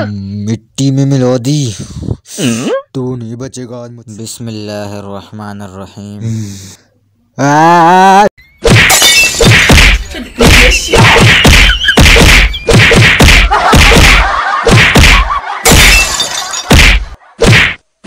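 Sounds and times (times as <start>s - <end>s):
hands slapping a person: 9.5s - 16.0s, 16.7s - 17.8s.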